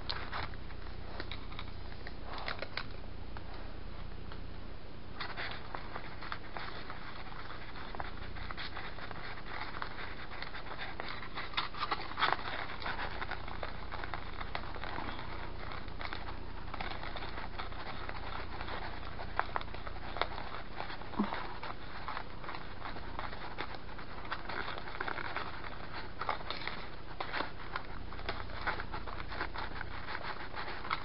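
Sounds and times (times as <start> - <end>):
plastic spoon scratching tray: 5.2 - 31.0.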